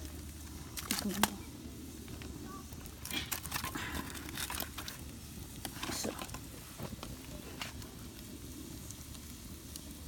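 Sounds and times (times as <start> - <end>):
wood fire crackles and pops: 0.0 - 10.0
onions sizzling in frying pan: 4.4 - 10.0.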